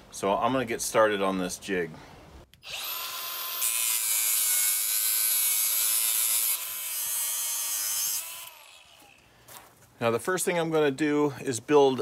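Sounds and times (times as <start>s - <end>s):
angle grinder grinding steel: 2.6s - 9.2s.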